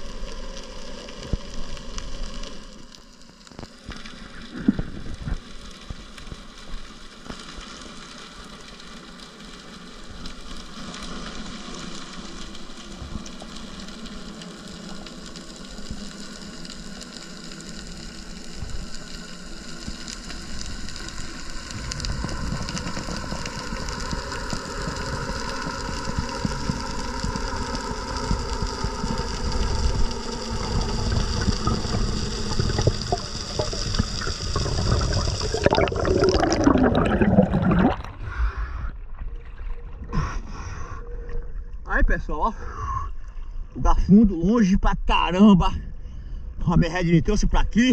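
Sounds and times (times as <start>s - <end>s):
underwater hiss: 10.4s - 39.1s, 40.0s - 41.6s
low rumble: 21.2s - 44.5s.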